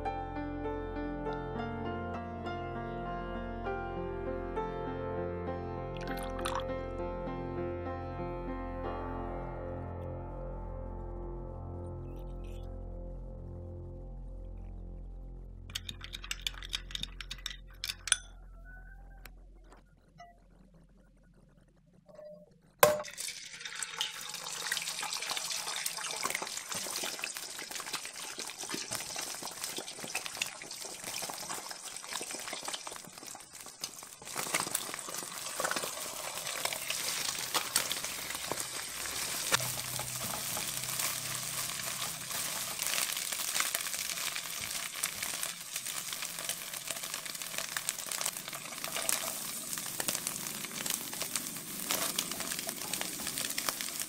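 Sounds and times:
eggs sizzling in oil: 0:06.0 - 0:06.7, 0:15.7 - 0:18.8, 0:22.8 - 0:54.0
spatula scraping pan: 0:35.6 - 0:43.1.

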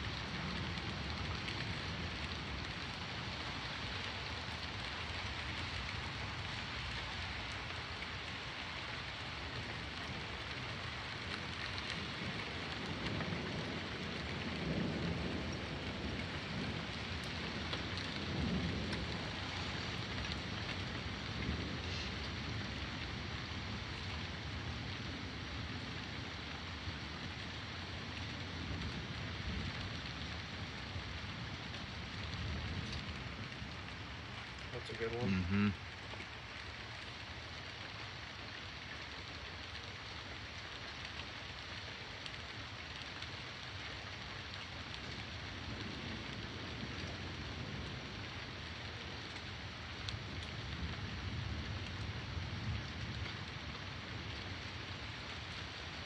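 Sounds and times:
steady rain falling: 0:00.0 - 0:56.0
low thunder rumbles: 0:09.4 - 0:36.4, 0:43.6 - 0:56.0.

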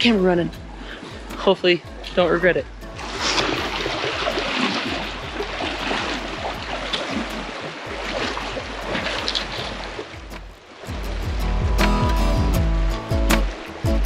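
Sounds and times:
river water rushing: 0:00.0 - 0:14.0
splashes from wading steps: 0:03.0 - 0:11.0.

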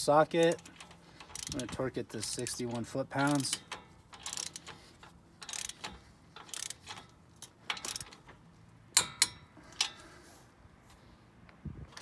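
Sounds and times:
ratcheting wrench ticking: 0:00.0 - 0:10.0
torque wrench sharp clicks: 0:00.5 - 0:01.8, 0:03.2 - 0:08.3.

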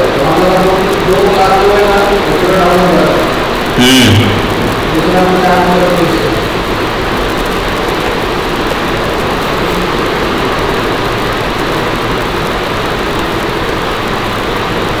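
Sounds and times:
loud rushing noise: 0:03.1 - 0:07.9.

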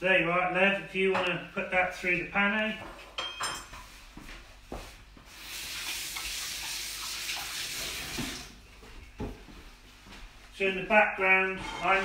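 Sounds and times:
water running from tap: 0:05.3 - 0:08.6.

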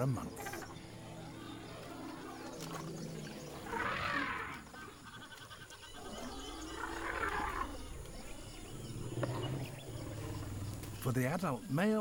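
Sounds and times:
low elephant rumble: 0:00.9 - 0:11.0.

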